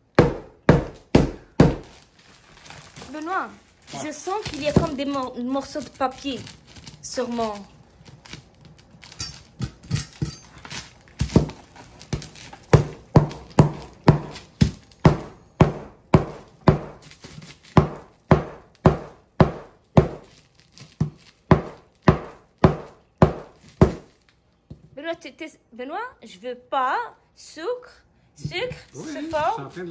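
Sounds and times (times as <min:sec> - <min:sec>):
knife chopping sugar loaf: 0:00.2 - 0:02.0, 0:04.3 - 0:05.2, 0:10.6 - 0:24.1.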